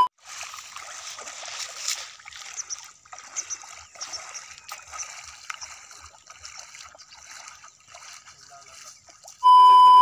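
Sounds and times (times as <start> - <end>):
feet wading through water: 0.0 - 10.0.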